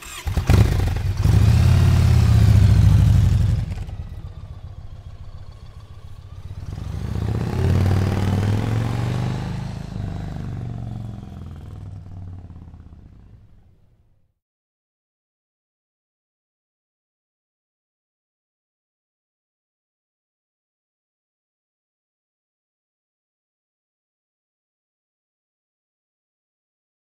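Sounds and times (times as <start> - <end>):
motorcycle engine revving: 0.0 - 13.9.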